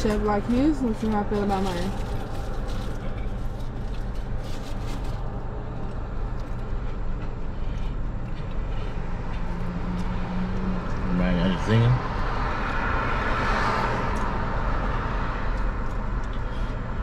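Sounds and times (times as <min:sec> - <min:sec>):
car engine hum inside cabin: 0:00.0 - 0:17.0.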